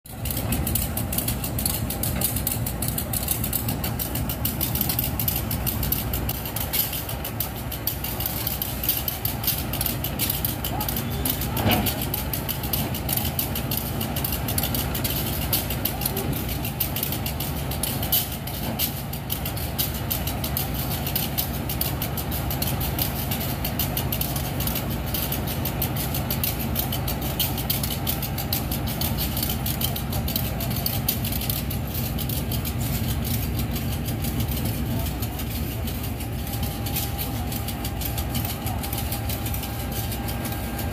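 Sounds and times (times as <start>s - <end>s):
diesel locomotive engine idling: 0.0s - 40.9s.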